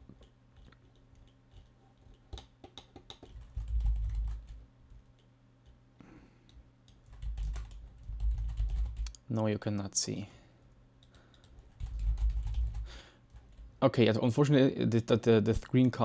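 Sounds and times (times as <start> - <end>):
computer mouse clicks: 0.1 - 4.5.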